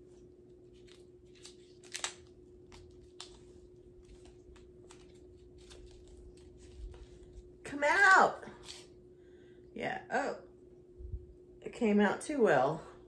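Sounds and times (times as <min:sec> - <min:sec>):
faint hum: 0:00.0 - 0:13.0
pencil packaging clicks: 0:00.7 - 0:07.1.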